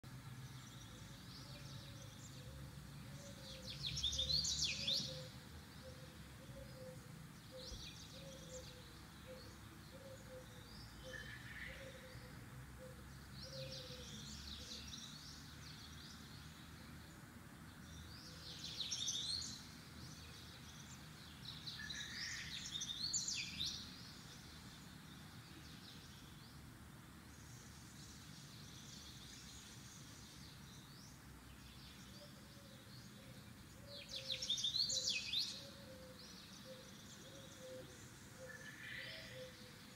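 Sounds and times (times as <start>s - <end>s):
low background hiss: 0.0s - 39.9s
birds chirping: 13.0s - 39.9s.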